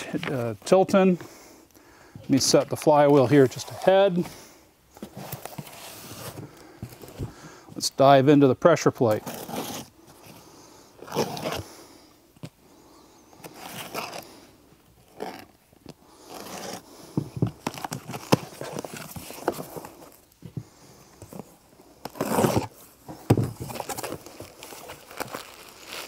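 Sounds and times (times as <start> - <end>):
cardboard rustling: 2.3 - 7.4, 16.2 - 26.0
cardboard scraping: 5.0 - 7.4, 9.1 - 10.4, 13.4 - 14.3, 15.0 - 15.6, 16.2 - 26.0
packing tape ripping: 13.5 - 14.3, 22.1 - 22.8, 23.7 - 26.0.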